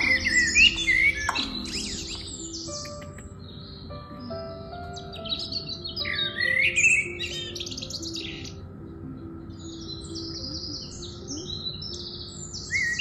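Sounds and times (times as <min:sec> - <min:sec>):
soft background music: 0:00.0 - 0:13.0
songbirds chirping: 0:00.0 - 0:13.0.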